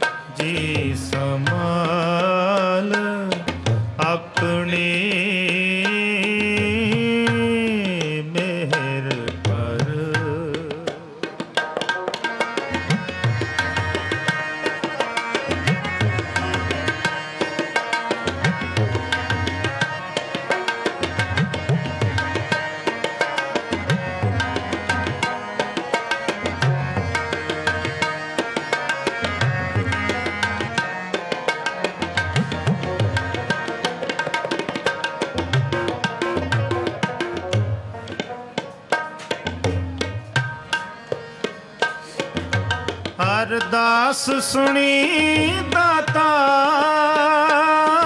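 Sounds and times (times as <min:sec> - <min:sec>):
harmonium notes: 0:00.0 - 0:48.0
tabla drumming: 0:00.0 - 0:48.0
person singing: 0:00.3 - 0:03.4, 0:43.2 - 0:48.0.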